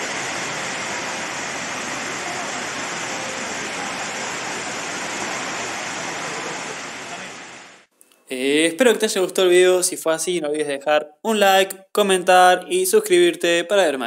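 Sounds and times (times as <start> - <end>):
indoor waterfall rushing: 0.0 - 7.9.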